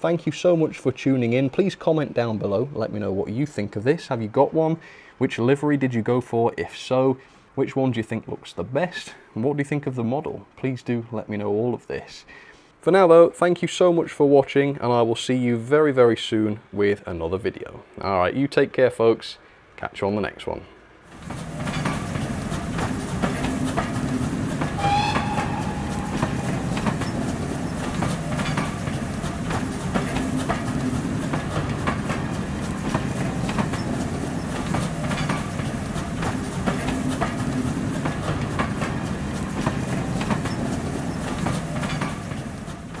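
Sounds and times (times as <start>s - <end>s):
passenger train rumbling past: 21.1s - 43.0s
wheels clacking over rail joints: 21.1s - 43.0s
brief high tone: 24.8s - 27.3s.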